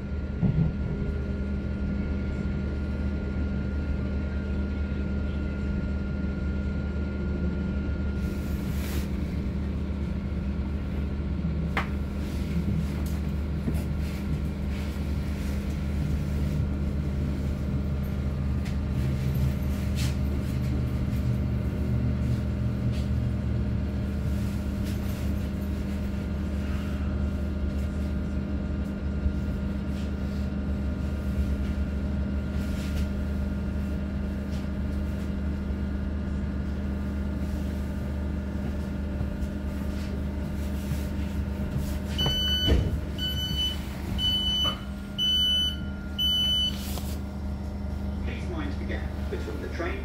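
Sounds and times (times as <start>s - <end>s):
train equipment hum: 0.0s - 50.0s
short high door beeps: 42.1s - 46.8s.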